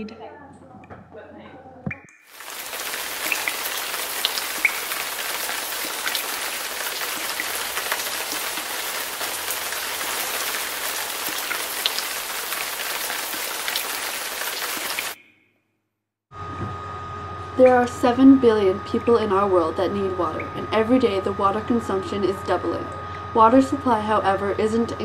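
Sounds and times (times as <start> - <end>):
steady rain: 2.3 - 15.2
drip ticks: 3.2 - 5.0.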